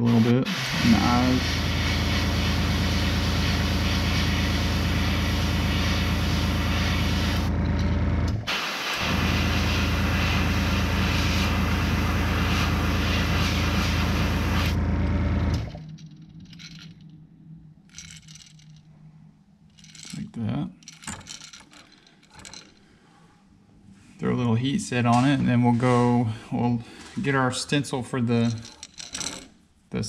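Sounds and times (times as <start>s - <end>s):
airbrush spraying hiss: 0.0s - 7.5s, 8.5s - 14.8s
compressor motor humming: 0.0s - 15.8s.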